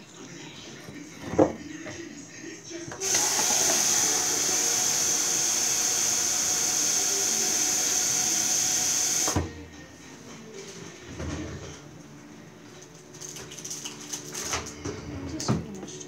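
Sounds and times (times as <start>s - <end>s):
tap water running into sink: 3.0s - 9.4s.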